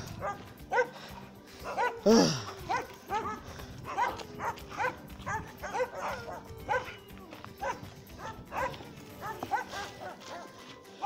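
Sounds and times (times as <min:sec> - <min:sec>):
dog yipping and whining: 0:01.7 - 0:10.6.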